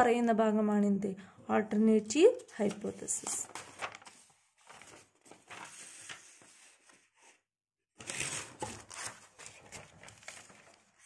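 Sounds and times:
paper rustling and crinkling: 0:02.5 - 0:07.4, 0:08.0 - 0:11.0.

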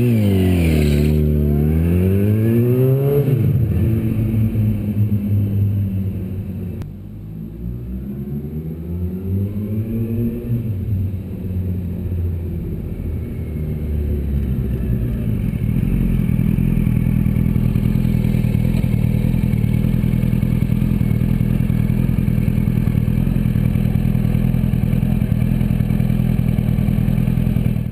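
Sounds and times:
motorcycle engine idling: 0:15.3 - 0:27.9.

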